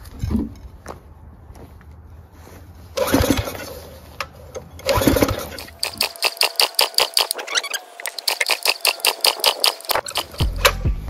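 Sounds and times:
engine cranking with recoil starter: 3.0 - 3.8, 4.8 - 10.8
rapid sharp clicks: 4.9 - 10.6.

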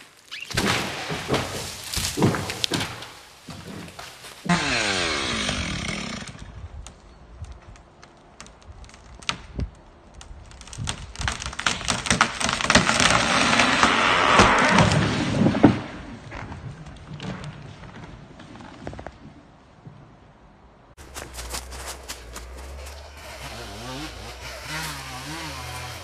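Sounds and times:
wood cracking: 0.0 - 19.2, 21.0 - 26.0
falling tree branches splintering: 0.2 - 6.4, 10.5 - 16.0.

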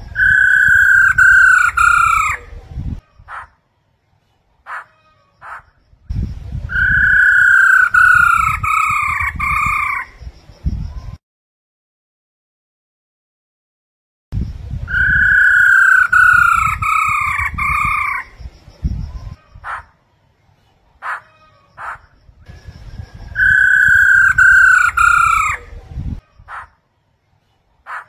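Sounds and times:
bird whistled song: 0.0 - 3.5, 4.8 - 11.2, 14.4 - 19.9, 21.1 - 26.7
short bird calls: 0.1 - 5.9, 19.2 - 22.7, 23.3 - 28.0.

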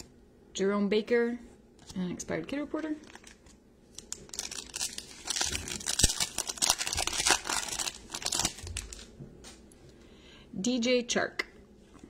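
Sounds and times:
foil wrapper tearing and crinkling: 3.0 - 9.1.

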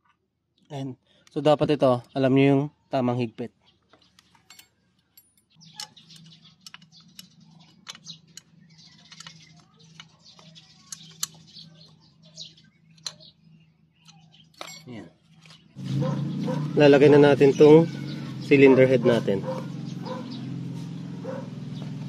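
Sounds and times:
metallic clicks of hand tools: 4.2 - 8.5.

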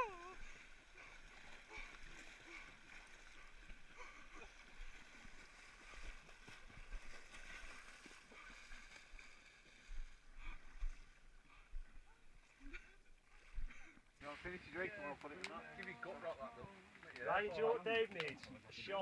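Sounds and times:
river water rushing and splashing: 0.0 - 10.4.

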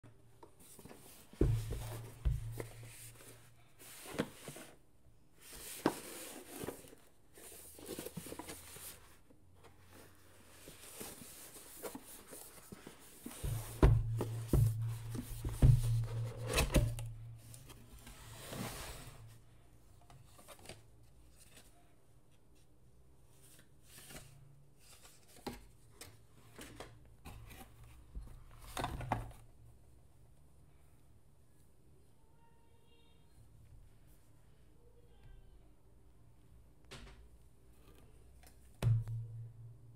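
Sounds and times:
heavy knocks on cardboard box: 13.4 - 16.2.

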